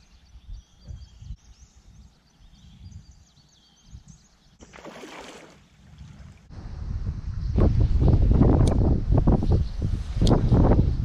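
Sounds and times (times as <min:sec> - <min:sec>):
wind buffeting microphone: 0:00.0 - 0:04.7, 0:05.7 - 0:11.0
small birds chirping: 0:00.0 - 0:04.8.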